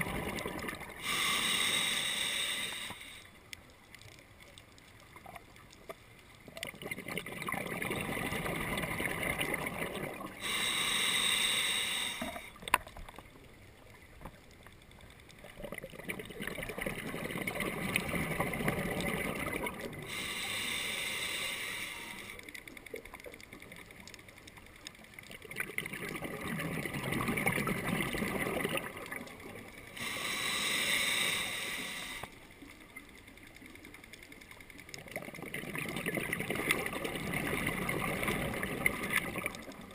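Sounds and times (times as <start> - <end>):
exhaled bubbles rushing: 0.0 - 1.0, 6.6 - 10.4, 15.4 - 20.0, 25.4 - 29.7, 35.0 - 39.9
regulator inhale hiss: 1.0 - 3.4, 10.4 - 12.6, 20.0 - 22.5, 29.9 - 32.5.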